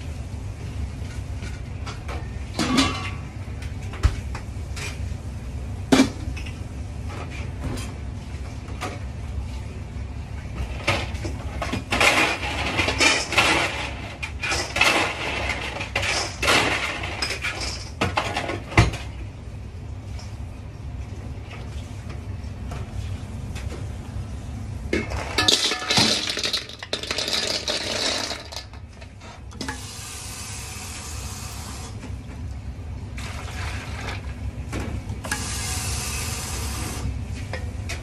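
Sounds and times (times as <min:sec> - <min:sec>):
steady low hum: 0:00.0 - 0:38.0
metal pots clanking: 0:25.0 - 0:28.8.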